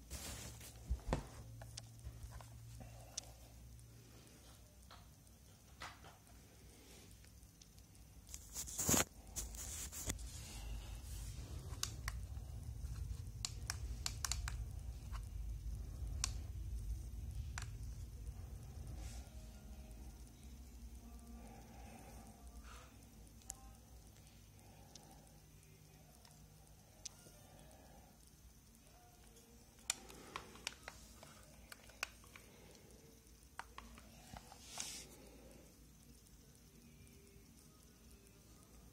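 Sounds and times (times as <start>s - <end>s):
bubble wrap rustling: 0.0s - 1.0s, 8.3s - 10.6s
sharp clicks: 13.4s - 16.8s.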